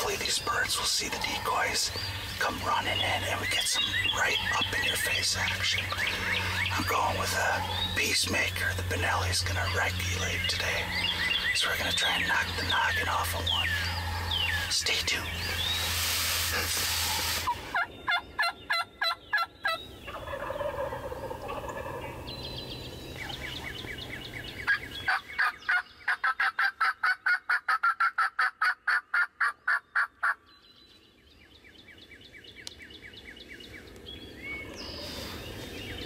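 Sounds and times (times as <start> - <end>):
faint songbirds chirping: 0.0 - 36.0
turkey yelping: 17.5 - 22.2, 24.7 - 30.4.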